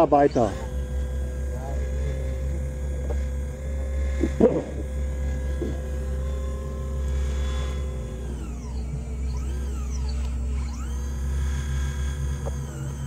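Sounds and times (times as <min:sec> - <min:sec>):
model excavator humming and whining: 0:00.0 - 0:13.0.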